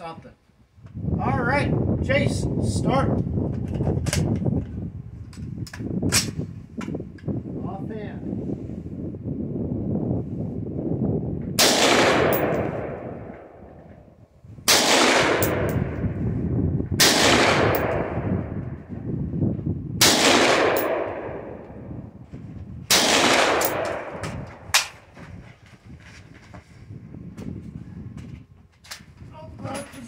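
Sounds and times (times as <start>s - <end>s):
rifle shots with echo: 11.6s - 13.6s, 14.7s - 16.0s, 17.0s - 18.3s, 20.0s - 21.6s, 22.9s - 25.0s.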